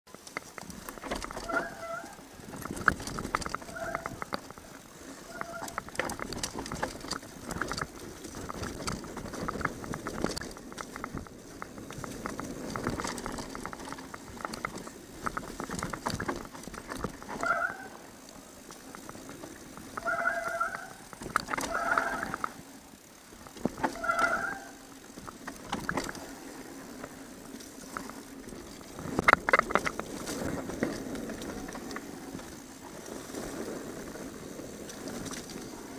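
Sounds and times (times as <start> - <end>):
bike frame and chain rattling: 0.1 - 35.9
tyres over dirt: 0.1 - 35.9
brake squeals: 1.0 - 7.8, 17.2 - 18.2, 19.9 - 22.6, 23.7 - 25.1.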